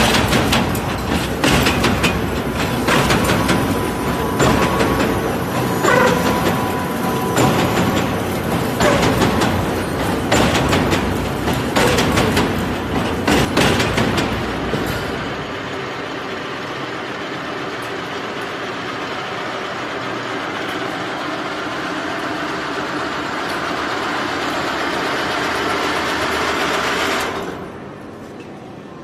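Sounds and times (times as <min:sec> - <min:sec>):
wire-winding machine whirring: 0:00.0 - 0:13.6.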